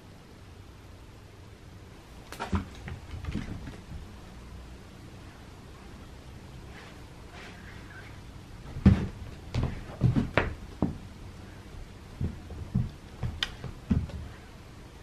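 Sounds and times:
cat paws thumping on carpet: 8.6s - 11.0s, 11.8s - 14.5s.

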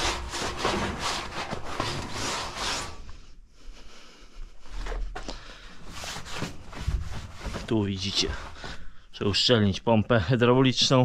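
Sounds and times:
rag wiping sheet metal: 0.0s - 3.0s.

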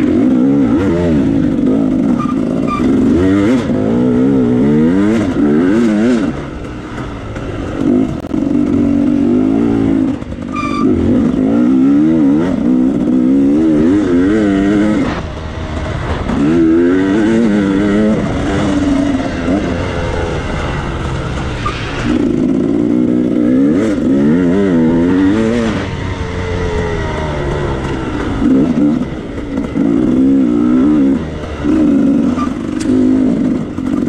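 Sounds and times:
dirt bike engine revving: 0.0s - 34.0s
short high squeak: 2.2s - 3.0s, 10.4s - 11.0s, 21.6s - 22.2s, 32.3s - 32.8s.

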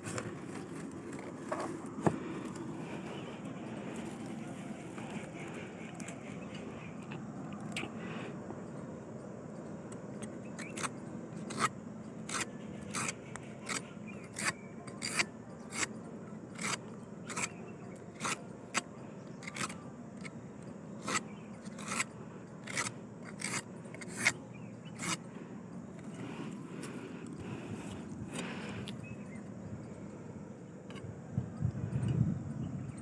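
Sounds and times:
knife rasping on palm stalk: 10.6s - 15.9s, 16.6s - 20.4s, 21.0s - 25.3s.

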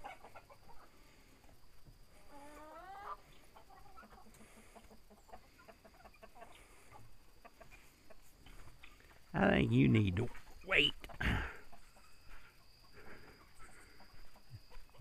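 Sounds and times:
chickens clucking: 0.0s - 9.3s, 10.2s - 15.0s.

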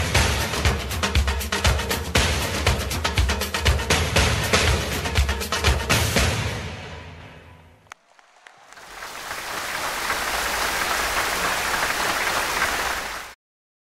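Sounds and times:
music with drums: 0.0s - 7.3s
large crowd applauding: 7.9s - 13.4s.

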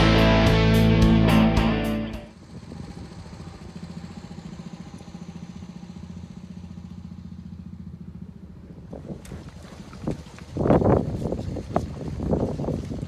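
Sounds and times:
engine idling: 0.0s - 8.9s.

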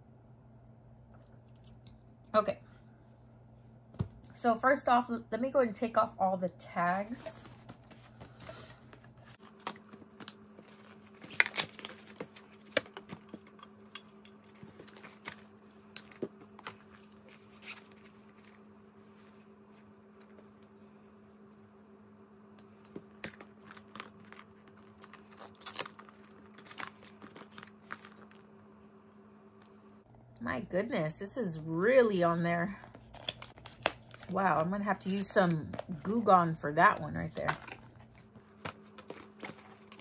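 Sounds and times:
faint steady hum: 0.0s - 40.0s
tags and packaging crinkling: 7.0s - 18.6s, 22.9s - 28.5s, 32.6s - 40.0s.

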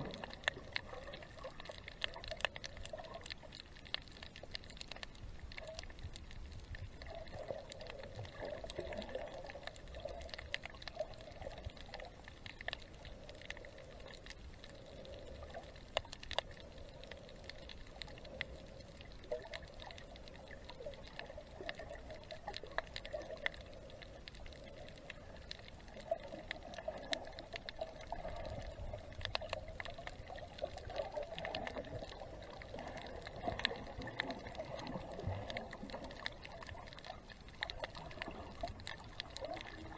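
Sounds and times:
water sloshing and gurgling underwater: 0.0s - 39.9s.

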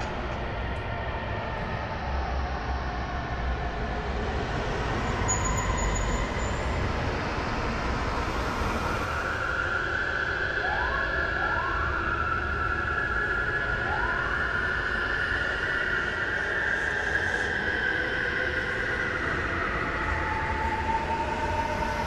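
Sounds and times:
distant siren: 9.3s - 16.5s.

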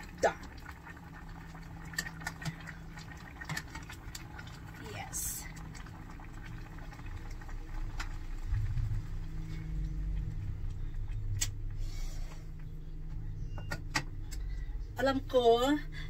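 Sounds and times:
low rumble: 5.5s - 13.5s.

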